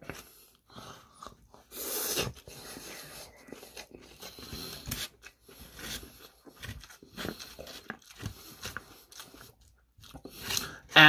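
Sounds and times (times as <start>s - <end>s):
chopsticks picking in foam box: 3.7s - 10.9s.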